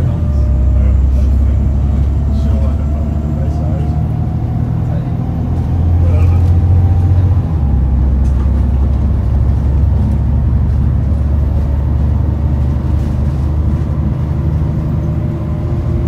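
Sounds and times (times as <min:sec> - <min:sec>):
bus diesel engine drone: 0:00.0 - 0:16.0
faint engine whine: 0:00.0 - 0:16.0.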